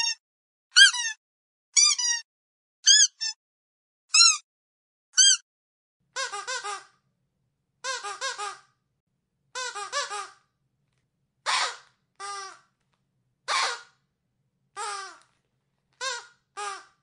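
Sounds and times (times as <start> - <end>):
squeaky dog toy squeaking: 0.0 - 3.4, 4.1 - 4.5, 5.2 - 5.4, 6.1 - 7.0, 7.8 - 8.7, 9.5 - 10.4, 11.4 - 12.7, 13.5 - 14.0, 14.8 - 15.3, 16.0 - 17.0.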